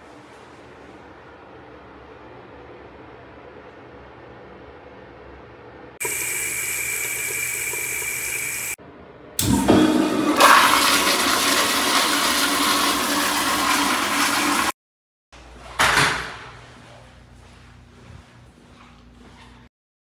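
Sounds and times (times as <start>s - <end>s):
toilet flushing: 6.0s - 8.8s, 9.4s - 14.8s.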